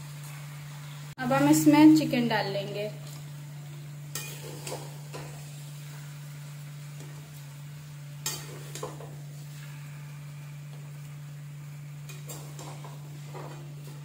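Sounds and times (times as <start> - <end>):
steady low hum: 0.0 - 14.0
metal utensil scraping pans: 4.1 - 5.6, 8.2 - 9.7, 12.0 - 14.0.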